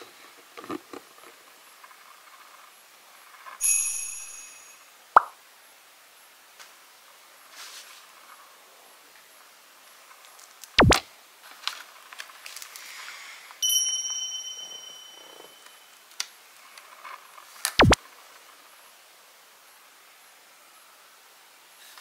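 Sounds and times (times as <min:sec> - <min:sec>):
bell-like ding: 0:03.6 - 0:04.8, 0:13.6 - 0:15.8.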